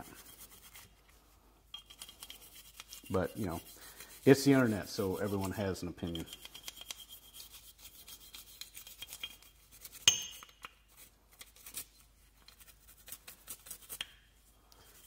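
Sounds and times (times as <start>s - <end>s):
brush scrubbing metal: 0.0s - 1.2s, 1.8s - 10.0s, 10.9s - 14.0s.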